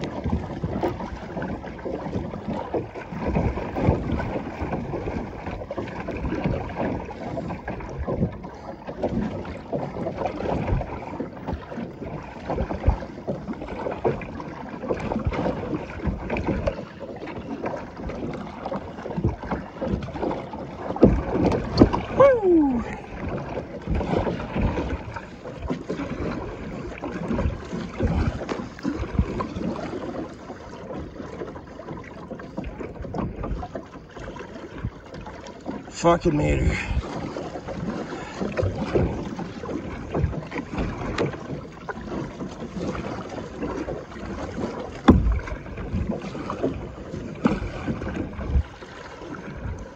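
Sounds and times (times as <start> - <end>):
water slapping against kayak: 0.0 - 49.9
wind on microphone: 27.2 - 30.0.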